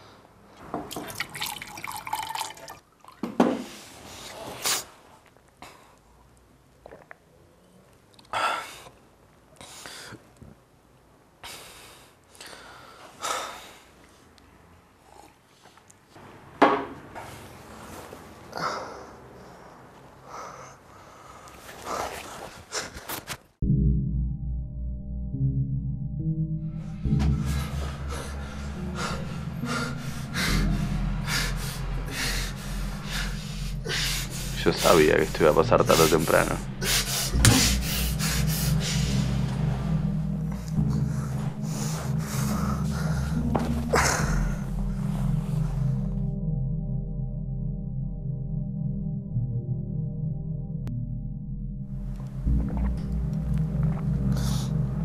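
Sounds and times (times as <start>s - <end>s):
man breathing heavily: 11.4s - 14.0s, 18.4s - 23.2s, 26.8s - 46.1s
steady low hum: 24.2s - 55.0s
man breathing hard in gasps: 27.4s - 34.6s.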